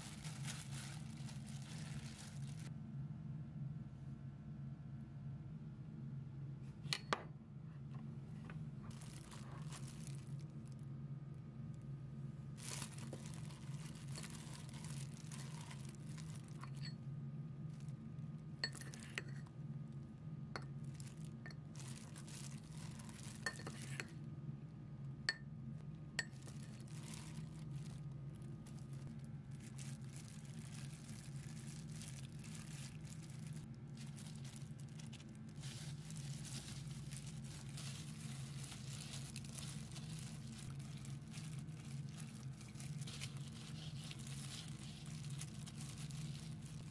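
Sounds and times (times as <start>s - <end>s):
rustling of gloved hands: 0.0s - 2.7s, 8.6s - 10.5s, 12.6s - 16.8s, 26.4s - 46.9s
steady low hum: 0.0s - 46.9s
metal spoon clinking on ceramic cup: 18.6s - 19.4s, 23.4s - 24.1s.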